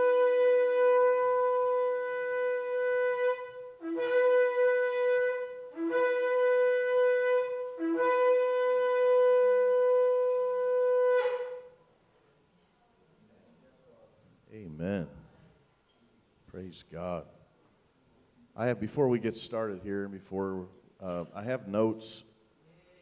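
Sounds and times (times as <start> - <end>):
ram's horn blasts: 0.0 - 11.8.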